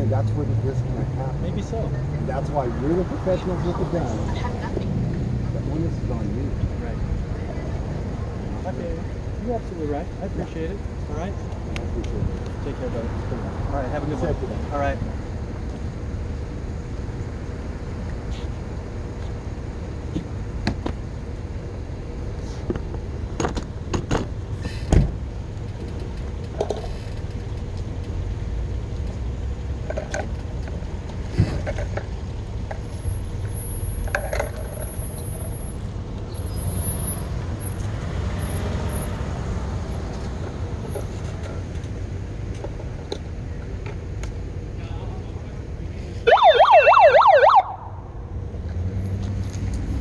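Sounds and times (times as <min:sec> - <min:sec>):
vehicle passing: 0:00.0 - 0:09.0, 0:33.0 - 0:42.0, 0:46.0 - 0:50.0
traffic rumble: 0:00.0 - 0:50.0.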